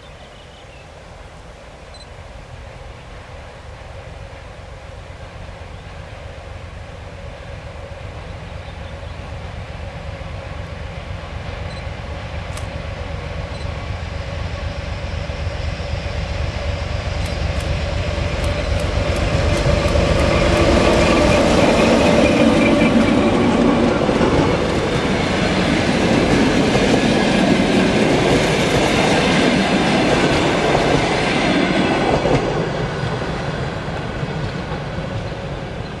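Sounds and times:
diesel locomotive engine: 0.0 - 36.0
train wheels clicking over rail joints: 17.0 - 36.0.

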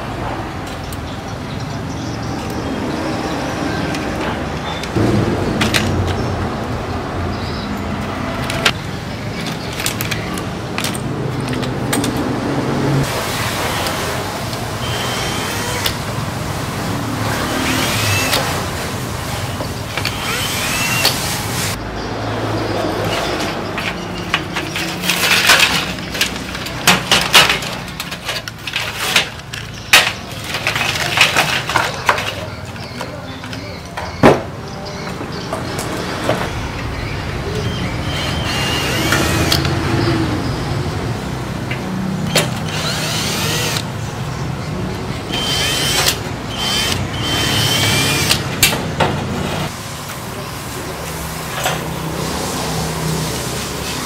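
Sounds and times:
metal parts clanking and rattling: 8.4 - 12.3, 23.0 - 34.4.

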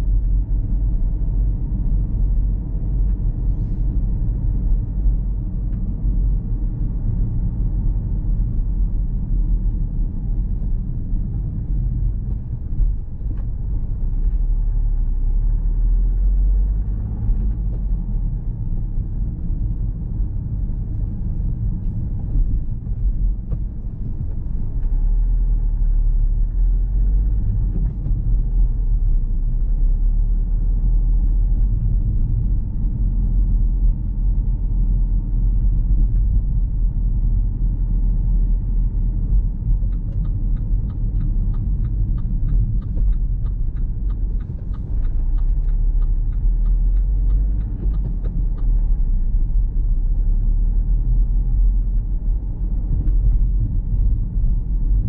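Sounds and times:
car driving on road: 0.0 - 55.0.

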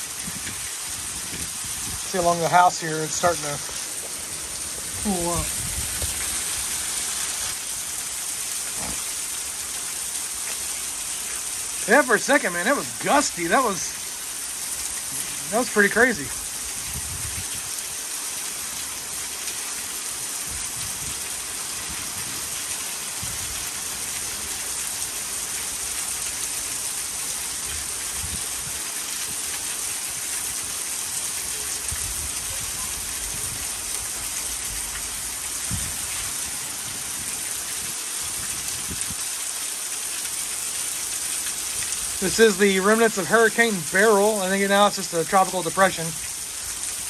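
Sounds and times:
heavy rain: 0.0 - 47.0
water pouring off a roof: 0.0 - 47.0.

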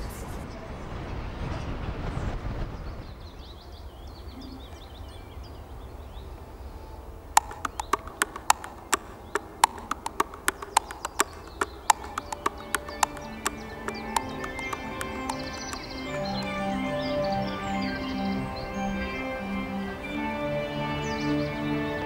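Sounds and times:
sharp wooden knocks: 7.4 - 16.5.

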